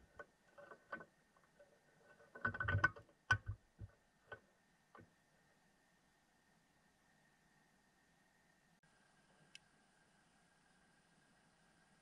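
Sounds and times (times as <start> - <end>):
underwater knocks and rattles: 0.0 - 4.4.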